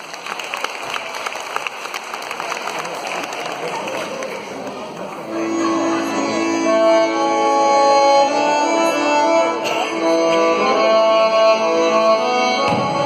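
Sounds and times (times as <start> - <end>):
instrumental folk music: 5.2 - 13.0.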